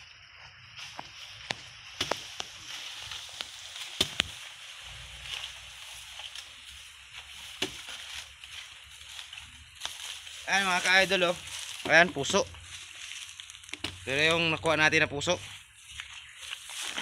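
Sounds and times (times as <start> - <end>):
dry stalks cracking underfoot: 0.0 - 17.0
footsteps rustling through grass: 0.0 - 17.0.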